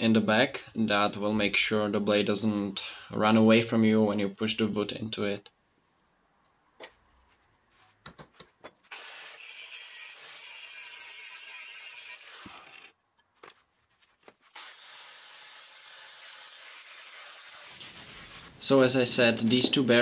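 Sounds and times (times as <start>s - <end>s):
angle grinder grinding steel: 8.9s - 12.9s, 14.5s - 18.6s.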